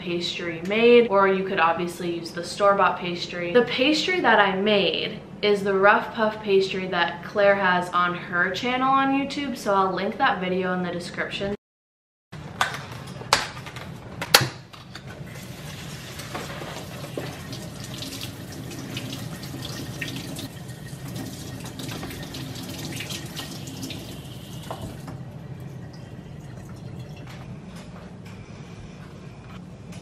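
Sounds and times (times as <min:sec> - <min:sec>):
faucet running into steel sink: 0:15.4 - 0:27.4.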